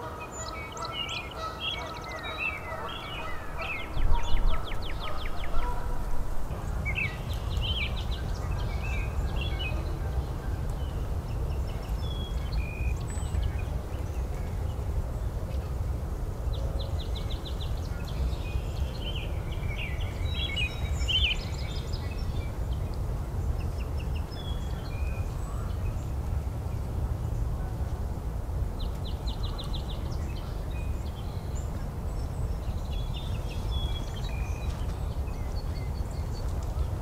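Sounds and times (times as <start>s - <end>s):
songbirds singing: 0.0s - 28.0s, 28.6s - 37.0s.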